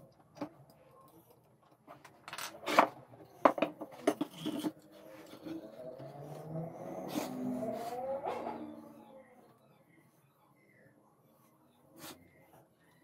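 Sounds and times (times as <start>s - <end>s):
metal tools clinking and knocking: 2.0s - 4.8s.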